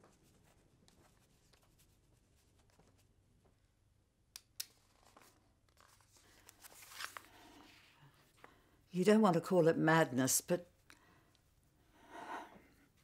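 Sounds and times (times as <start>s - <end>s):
paper sheets handling: 4.8s - 7.9s.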